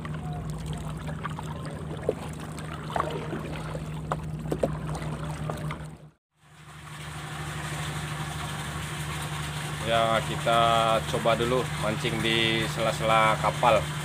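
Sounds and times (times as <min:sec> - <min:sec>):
water knocking on hull: 0:00.0 - 0:06.1
water splashing: 0:00.0 - 0:06.2
boat motor humming: 0:00.0 - 0:14.0.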